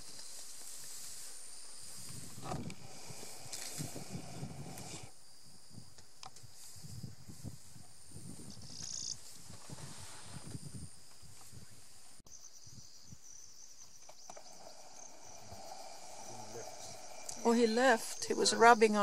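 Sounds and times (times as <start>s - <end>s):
elephant pulling up and chewing grass: 0.0s - 5.1s, 14.2s - 17.8s
insects chirring: 0.0s - 19.0s.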